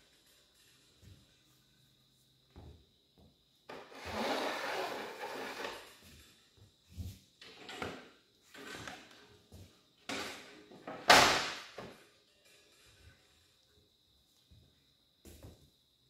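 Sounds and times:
wooden board scraping on table: 3.9s - 5.9s.

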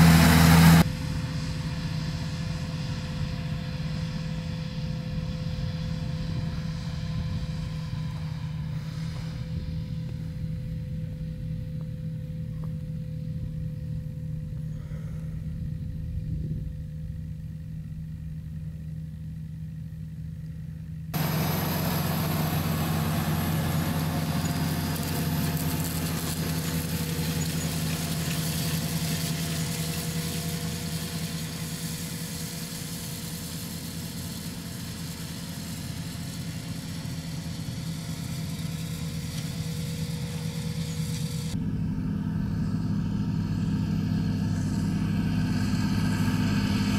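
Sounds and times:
tractor diesel engine running: 0.0s - 46.9s
hiss of soil and machinery: 7.5s - 10.2s, 21.2s - 41.6s, 42.6s - 46.9s.

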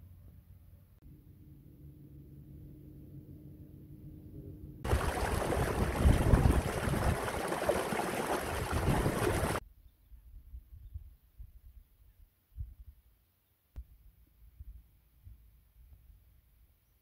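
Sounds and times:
stream water running: 4.8s - 9.6s.

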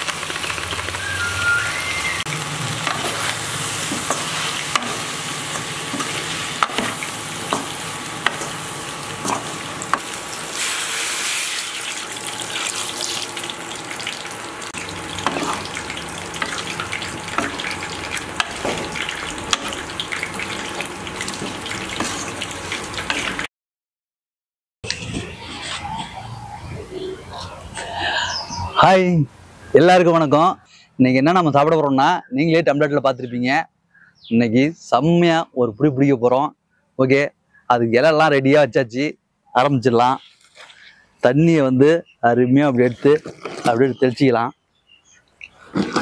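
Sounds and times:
food sizzling in a pot: 0.0s - 23.5s
water pouring: 0.0s - 23.5s.

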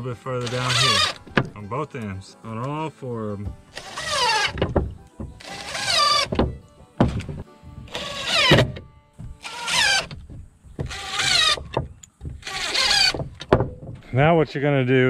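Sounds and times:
cordless drill whine: 0.4s - 1.4s, 3.7s - 4.7s, 5.4s - 6.4s, 7.9s - 10.2s, 10.8s - 11.7s, 12.4s - 13.2s.

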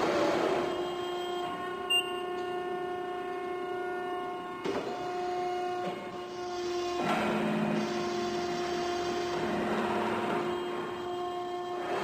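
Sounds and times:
hydraulic pump whining hum: 0.0s - 12.0s
short high beep: 1.0s - 2.2s.

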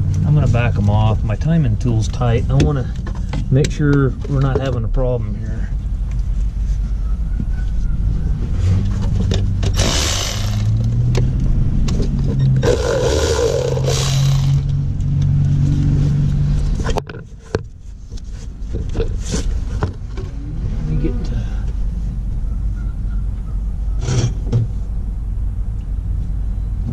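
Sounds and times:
motor humming: 9.7s - 10.8s, 12.6s - 14.7s.

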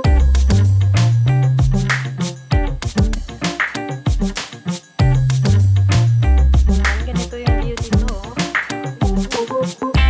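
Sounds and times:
deep bass: 0.0s - 2.0s, 5.0s - 8.4s
keyboard melody: 0.0s - 10.0s.

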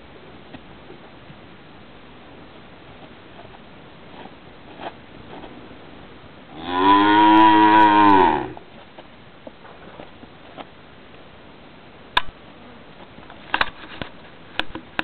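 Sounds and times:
cow mooing: 6.5s - 8.6s.

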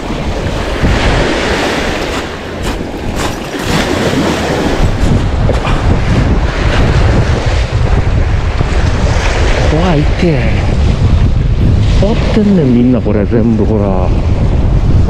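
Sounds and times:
waves splashing against concrete: 0.0s - 10.7s
wind buffeting microphone: 0.0s - 15.0s.

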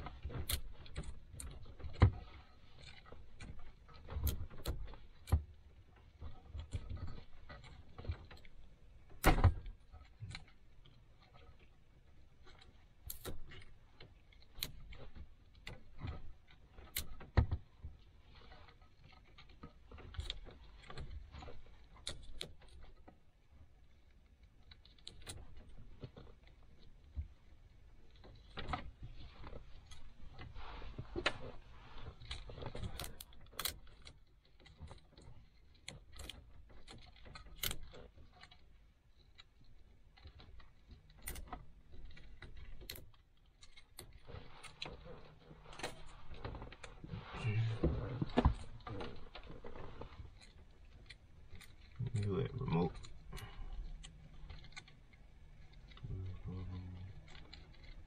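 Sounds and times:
hands handling wiring and tape: 0.0s - 58.0s.

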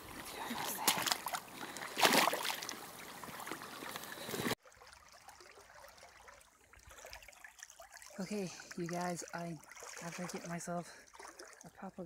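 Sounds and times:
water sloshing from wading: 0.0s - 12.0s
loud splash: 2.0s - 2.7s.

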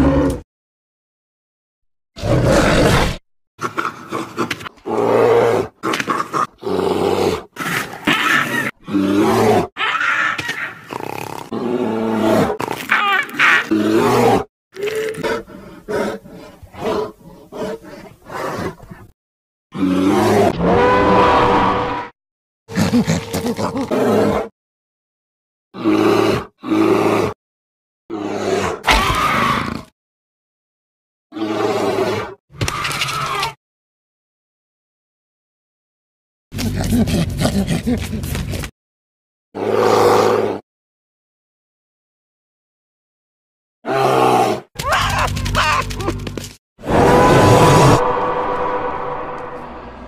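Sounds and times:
creature roars and growls: 0.0s - 0.4s, 2.2s - 18.8s, 19.7s - 22.1s, 22.7s - 24.5s, 25.8s - 27.4s, 28.1s - 30.0s, 31.3s - 33.6s, 39.6s - 40.6s, 43.8s - 46.1s, 46.8s - 50.0s.

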